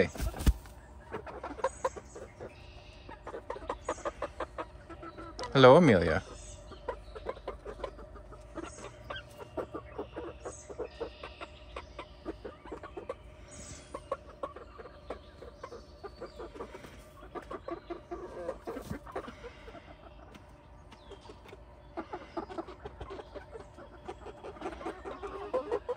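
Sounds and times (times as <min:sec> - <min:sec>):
hens clucking softly: 0:00.0 - 0:25.9.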